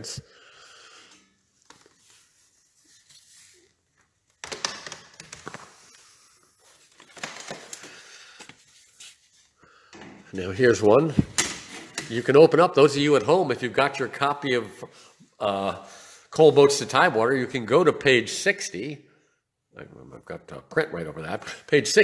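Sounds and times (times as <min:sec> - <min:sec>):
framed prints rustling and scraping: 0:01.0 - 0:10.2.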